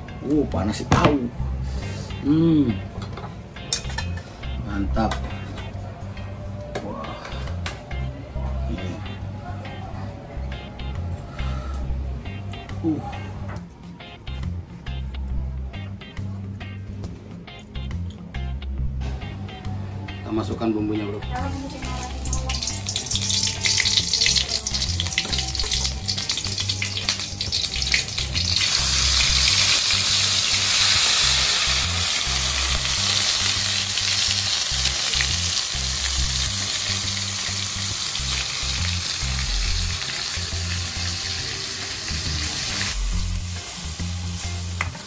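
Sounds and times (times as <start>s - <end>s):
hot oil crackling and popping: 21.6s - 45.0s
loud steady sizzle: 21.6s - 45.0s.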